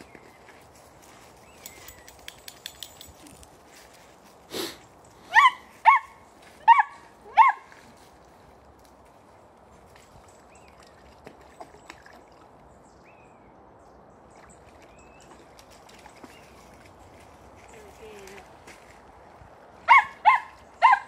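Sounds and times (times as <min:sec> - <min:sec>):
small dog barking: 0:05.3 - 0:07.7, 0:19.9 - 0:21.0.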